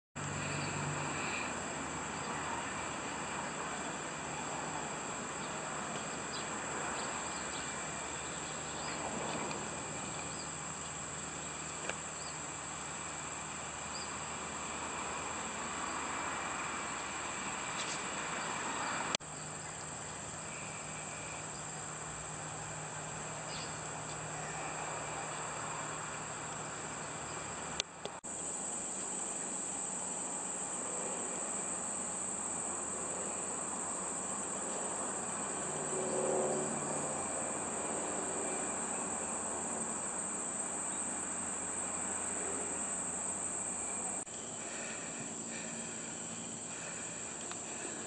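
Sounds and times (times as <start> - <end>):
high-pitched insect chorus: 0.2 - 48.0.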